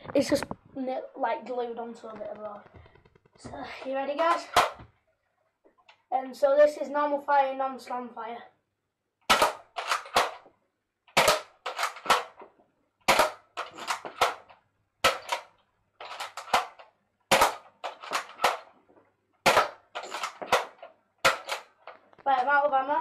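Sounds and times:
toy blaster popping: 4.2s - 4.9s, 9.3s - 10.5s, 11.1s - 12.4s, 13.0s - 18.7s, 19.4s - 22.4s.

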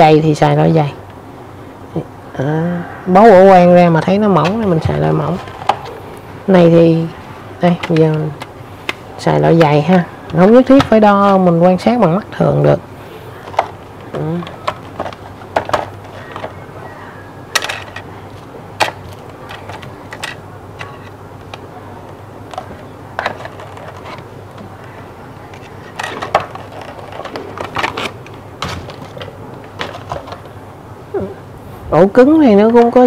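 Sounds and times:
plastic packaging rustling: 4.5s - 6.3s, 13.0s - 16.7s, 17.5s - 21.7s, 22.5s - 30.6s.

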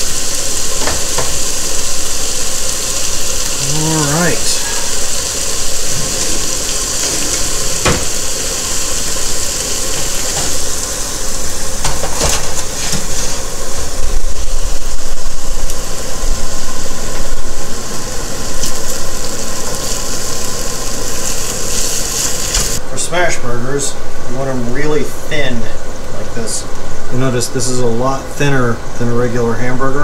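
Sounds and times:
burger patties sizzling on griddle: 0.0s - 22.8s.

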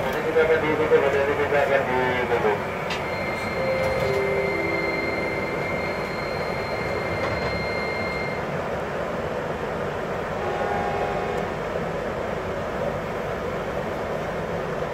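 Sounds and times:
electric train running: 0.0s - 13.9s
thin high whine: 3.1s - 8.4s.

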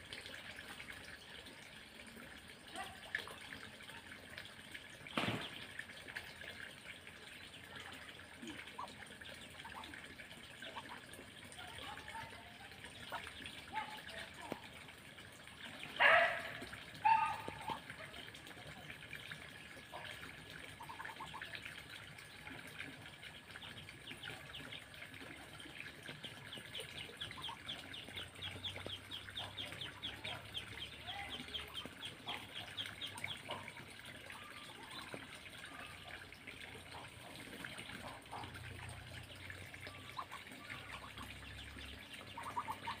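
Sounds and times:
ducklings peeping: 25.6s - 35.2s, 40.1s - 43.0s.

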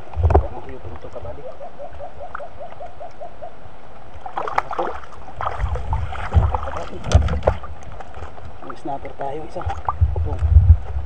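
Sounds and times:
river flowing: 0.8s - 9.9s
bird calling: 1.3s - 3.7s
fish splashing at surface: 4.2s - 8.3s.

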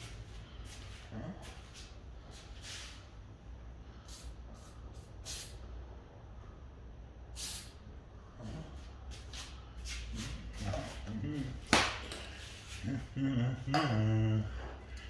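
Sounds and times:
spray paint can hissing: 4.0s - 5.6s, 7.4s - 7.8s.

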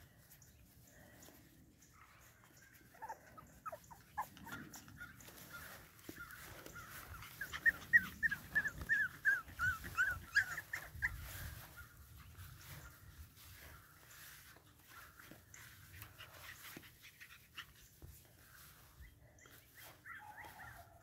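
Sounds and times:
puppy whimpering: 2.9s - 5.2s, 6.8s - 11.5s.

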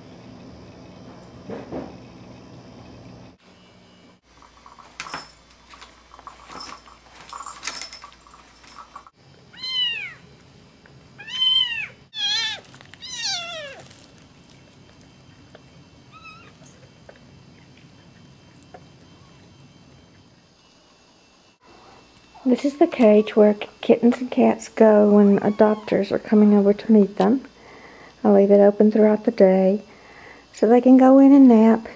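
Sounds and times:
kittens mewing: 9.5s - 10.3s, 11.2s - 14.0s, 16.1s - 16.6s, 25.3s - 26.1s.

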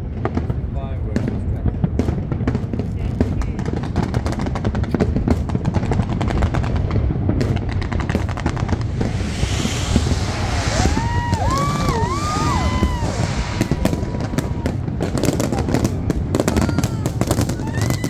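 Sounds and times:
fireworks bangs and pops: 0.0s - 18.0s
crackling hiss: 8.2s - 15.1s.

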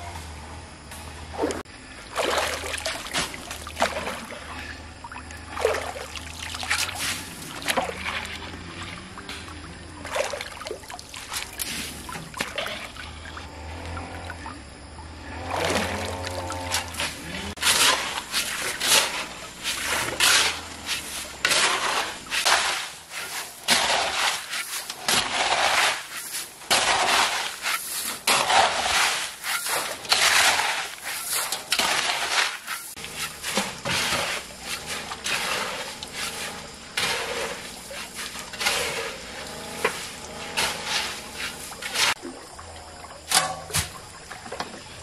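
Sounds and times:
shovel scraping wet gravelly sand: 5.7s - 8.4s, 11.1s - 12.7s, 15.6s - 42.2s.

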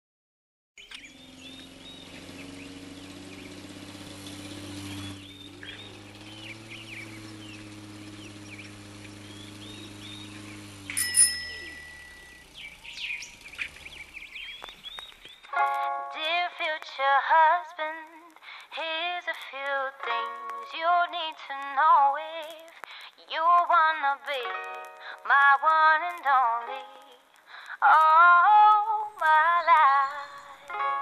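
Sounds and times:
birds chirping and singing: 0.8s - 15.5s, 28.9s - 31.0s
low mechanical hum: 0.9s - 14.6s.

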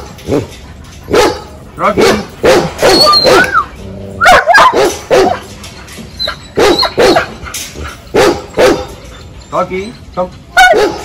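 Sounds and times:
dog barking rapidly: 1.1s - 3.6s, 4.2s - 5.4s, 6.6s - 7.4s, 8.1s - 8.9s, 10.6s - 11.0s.

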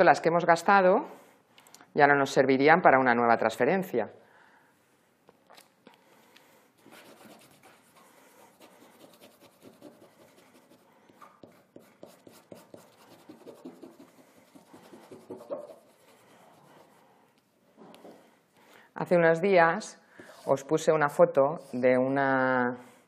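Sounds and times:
paper rubbing on canvas: 6.8s - 10.9s, 11.5s - 17.0s.

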